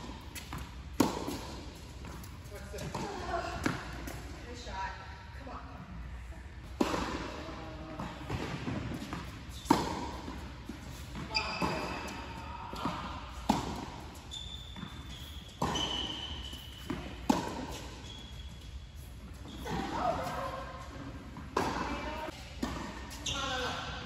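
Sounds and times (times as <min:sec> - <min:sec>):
ball bouncing on hard court: 0:00.0 - 0:04.3, 0:08.0 - 0:18.2, 0:19.4 - 0:24.0
racquets hitting tennis ball: 0:00.0 - 0:04.4, 0:06.7 - 0:07.4, 0:08.0 - 0:24.0.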